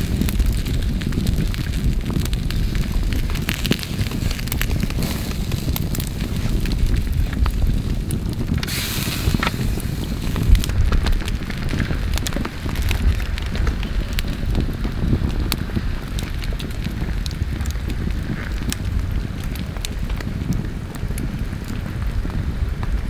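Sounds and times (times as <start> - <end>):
campfire crackling and popping: 0.0 - 23.0
low rumble: 0.0 - 23.0
brief hiss: 8.6 - 9.7.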